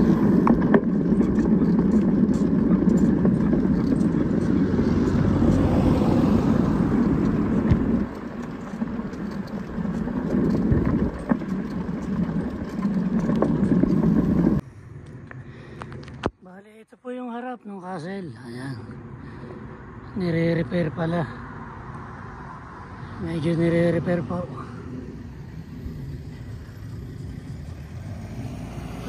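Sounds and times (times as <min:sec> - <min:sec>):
wind buffeting microphone: 0:00.0 - 0:14.6
bike clicks and rattles: 0:00.0 - 0:16.4.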